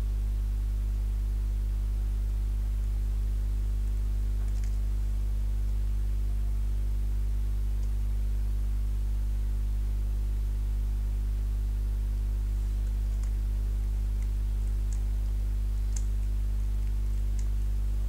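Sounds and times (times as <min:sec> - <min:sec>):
electrical mains hum: 0:00.0 - 0:18.0
faint clicks: 0:04.4 - 0:04.9, 0:15.9 - 0:17.7.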